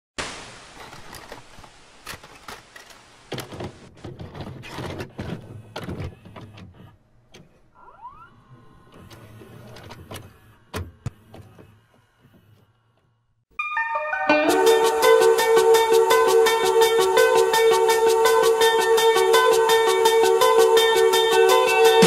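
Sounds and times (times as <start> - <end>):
tape mechanism clicks and clunks: 2.0 - 7.7, 8.6 - 13.0.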